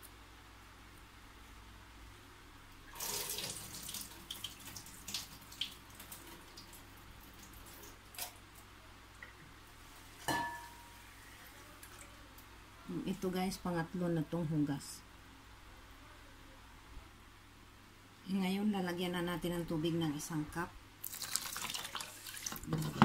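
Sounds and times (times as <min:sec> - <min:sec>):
tap water running into a pot: 0:02.9 - 0:08.4, 0:21.0 - 0:23.0.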